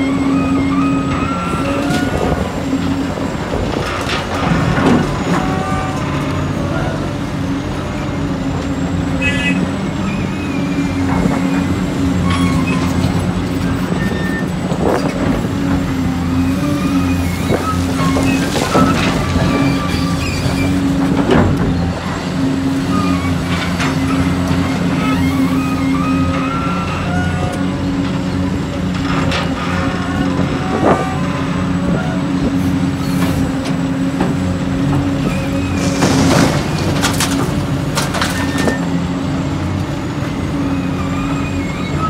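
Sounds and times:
diesel engine running: 0:00.0 - 0:42.0.

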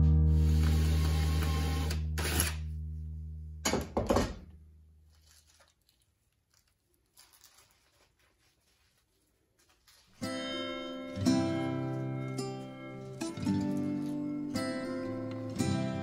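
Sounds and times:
scratchy guitar strokes: 0:10.1 - 0:16.0
acoustic guitar chord ringing: 0:10.2 - 0:16.0.

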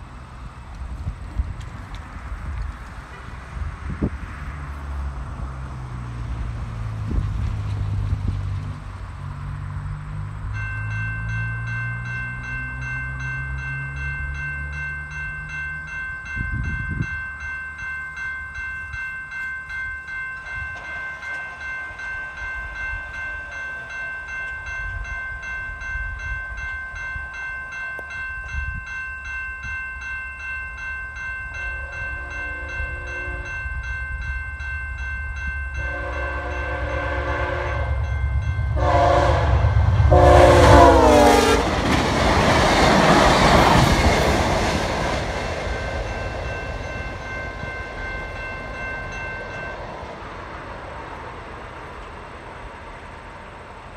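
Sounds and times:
railway crossing bell ringing: 0:00.0 - 0:53.9
train rumble: 0:00.0 - 0:53.9
locomotive horn blasts: 0:31.7 - 0:33.7, 0:35.8 - 0:41.9.

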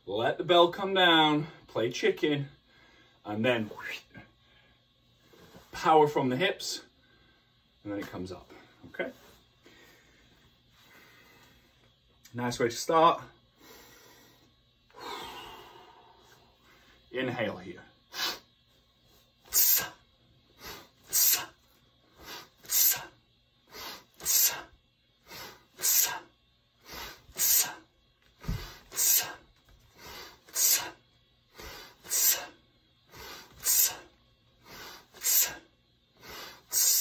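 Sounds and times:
sharp forceful breathing: 0:13.5 - 0:17.1, 0:19.5 - 0:37.0.

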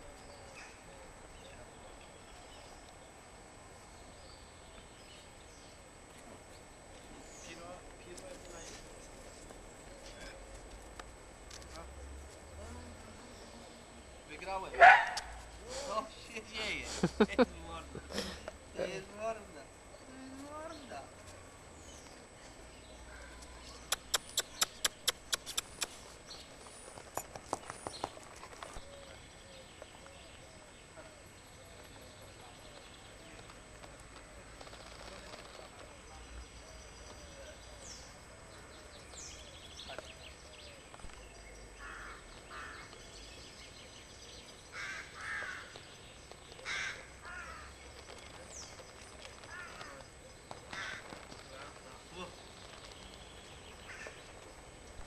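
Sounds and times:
steady low hiss: 0:00.0 - 0:55.0
puppy claws clicking on concrete: 0:23.9 - 0:26.2.

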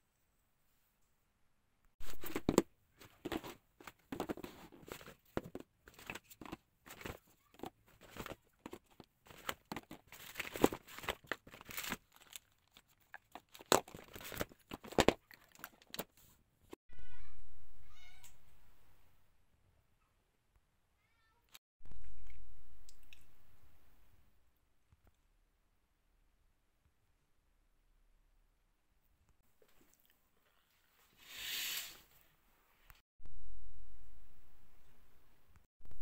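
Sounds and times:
packaging tearing and crinkling: 0:06.9 - 0:16.1.

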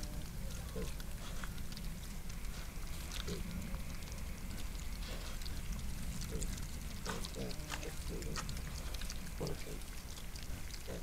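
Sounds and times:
low hum: 0:00.0 - 0:11.0
rooting in gravel rustling: 0:00.0 - 0:11.0
piglet grunts and squeaks: 0:06.2 - 0:09.8.

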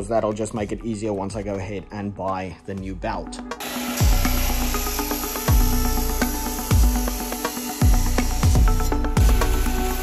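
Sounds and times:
electronic music: 0:03.2 - 0:10.0.

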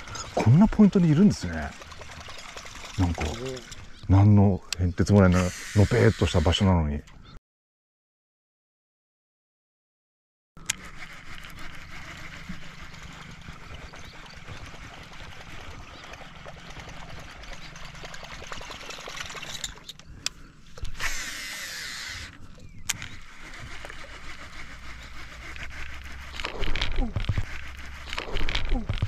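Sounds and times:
fishing reel spool whirring: 0:00.0 - 0:04.0, 0:05.3 - 0:06.6, 0:10.6 - 0:20.0, 0:20.8 - 0:29.0.

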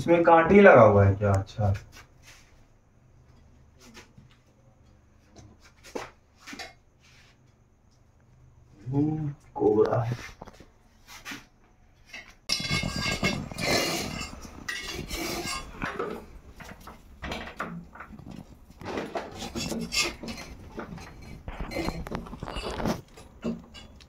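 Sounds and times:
rustling of shifted objects: 0:09.6 - 0:24.0
metal rod clattering on bricks: 0:12.0 - 0:24.0.

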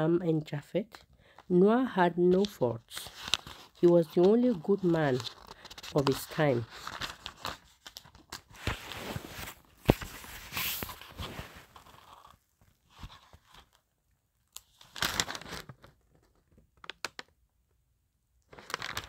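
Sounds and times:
rustling and crinkling: 0:02.3 - 0:13.9, 0:18.5 - 0:19.0.

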